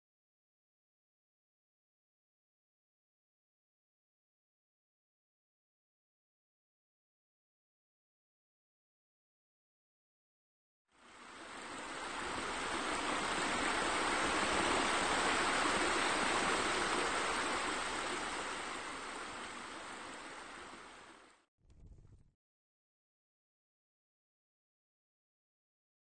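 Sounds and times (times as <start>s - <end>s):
waterfall splashing into pool: 11.1s - 21.4s.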